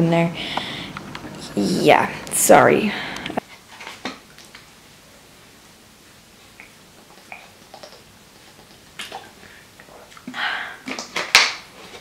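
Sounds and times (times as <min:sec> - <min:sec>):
person breathing out: 0:00.4 - 0:01.0, 0:02.8 - 0:03.4, 0:09.4 - 0:10.9.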